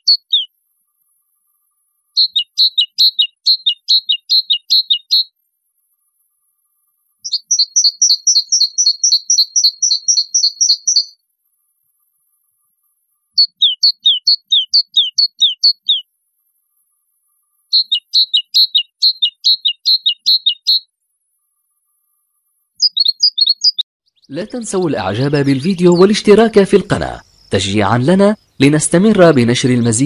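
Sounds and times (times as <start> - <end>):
songbird chirping: 0.0 - 0.5, 2.1 - 5.4, 7.2 - 11.2, 13.3 - 16.1, 17.4 - 21.9, 22.7 - 30.0.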